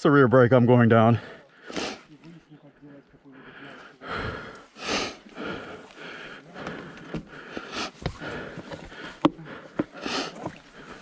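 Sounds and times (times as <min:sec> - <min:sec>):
person breathing heavily: 0:01.2 - 0:02.1, 0:03.2 - 0:11.0.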